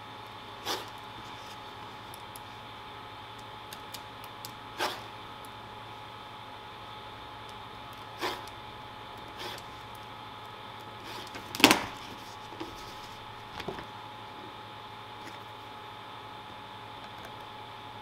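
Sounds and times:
steady background hum: 0.0 - 18.0
craft knife slicing leather: 8.2 - 8.6.

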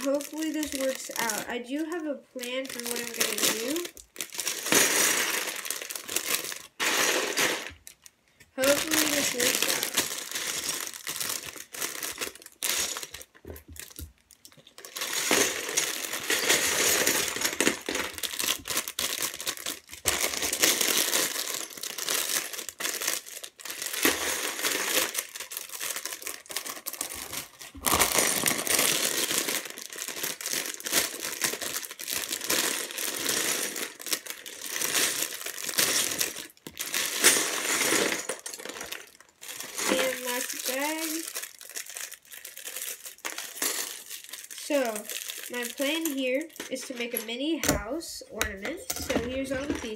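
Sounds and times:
plastic bags crinkling: 0.0 - 49.9
plastic bricks clattering into bin: 2.8 - 8.0, 8.6 - 23.1, 23.7 - 41.4, 47.8 - 49.9.

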